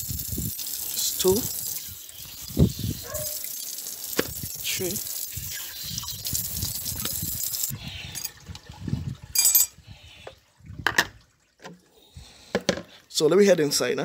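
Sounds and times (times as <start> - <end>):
water running and splashing: 0.0 - 11.9
bucket knocks and rattle: 12.5 - 12.9.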